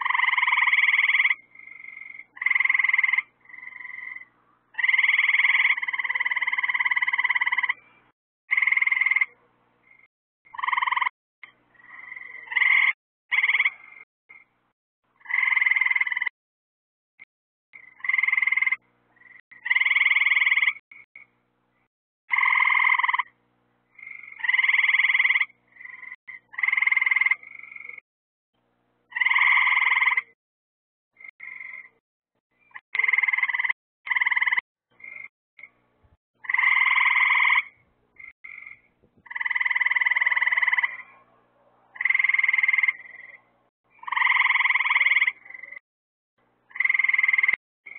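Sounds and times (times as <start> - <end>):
frog chirps: 0.0 - 7.8, 8.5 - 11.1, 11.7 - 14.5, 15.2 - 16.4, 17.8 - 21.3, 22.3 - 23.3, 23.9 - 28.0, 29.1 - 30.4, 31.2 - 32.0, 32.6 - 35.7, 36.4 - 41.2, 41.9 - 45.8, 46.7 - 47.9
frogs trilling: 0.0 - 7.8, 8.5 - 11.1, 11.7 - 14.5, 15.2 - 16.4, 17.8 - 21.3, 22.3 - 23.3, 23.9 - 28.0, 29.1 - 30.4, 31.2 - 32.0, 32.6 - 35.7, 36.4 - 41.2, 41.9 - 45.8, 46.7 - 47.9.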